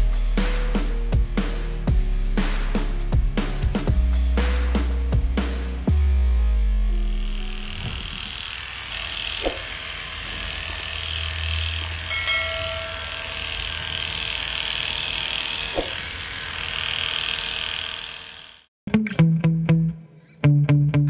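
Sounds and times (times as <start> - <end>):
electric clippers buzzing: 6.9 - 18.8.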